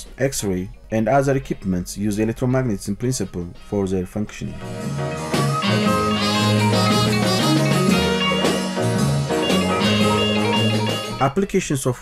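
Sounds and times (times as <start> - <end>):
instrumental music: 4.5 - 11.3.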